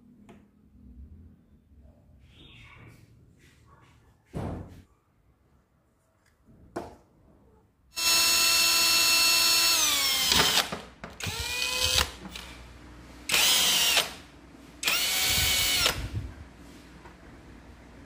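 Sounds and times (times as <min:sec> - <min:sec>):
cordless drill whining: 0:08.0 - 0:12.6, 0:13.3 - 0:14.2, 0:14.8 - 0:16.2.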